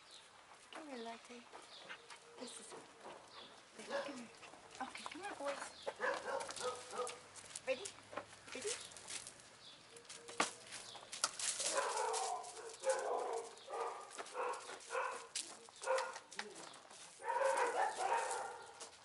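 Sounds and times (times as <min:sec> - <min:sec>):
dogs barking: 0:03.4 - 0:04.3, 0:05.8 - 0:07.3, 0:11.6 - 0:16.3, 0:17.2 - 0:19.0.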